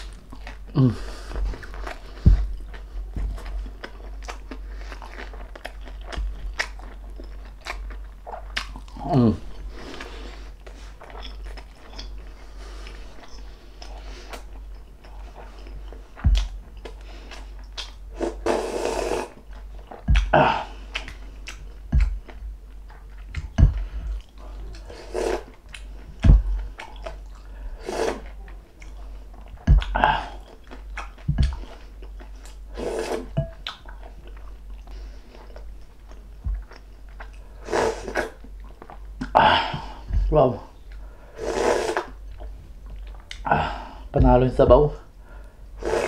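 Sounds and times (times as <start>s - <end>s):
person chewing: 0.0s - 44.1s
person slurping broth: 18.2s - 19.4s, 24.8s - 25.6s, 27.8s - 28.4s, 32.7s - 33.4s, 37.6s - 38.4s, 41.3s - 42.2s, 45.8s - 46.0s.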